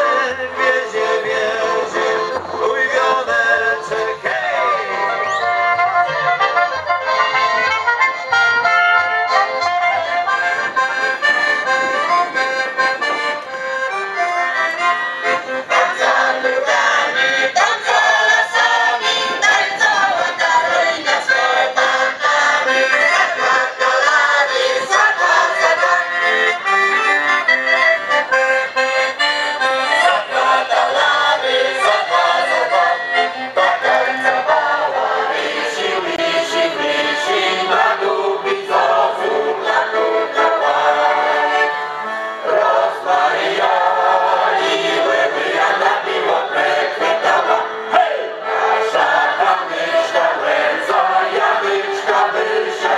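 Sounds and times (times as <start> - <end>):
choir singing: 0.0 - 5.6, 15.2 - 26.5, 29.8 - 52.9
accordion playing folk dance tune: 0.0 - 52.9.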